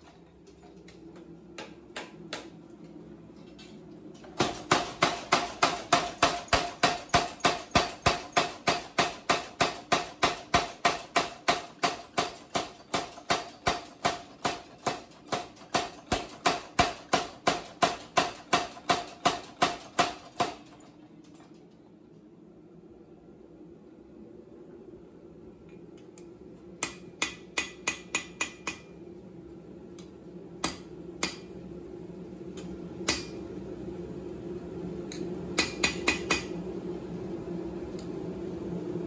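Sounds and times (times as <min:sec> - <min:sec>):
power hammer pounding steel: 0:04.4 - 0:20.7.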